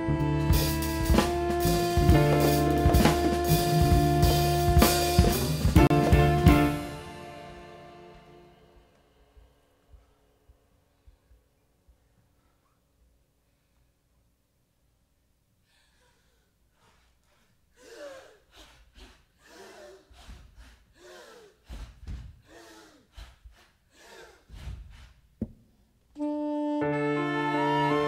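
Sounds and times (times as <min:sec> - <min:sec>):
live band chord: 0:00.0 - 0:09.3, 0:26.2 - 0:28.0
people gasping for breath: 0:15.6 - 0:25.4.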